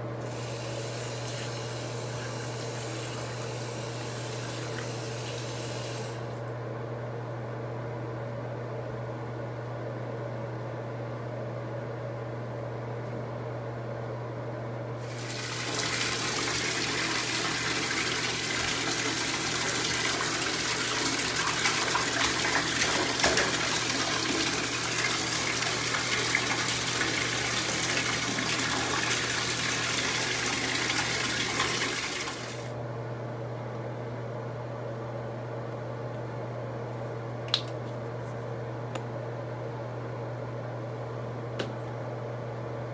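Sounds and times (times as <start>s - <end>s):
water running into bathtub: 15.0s - 32.7s.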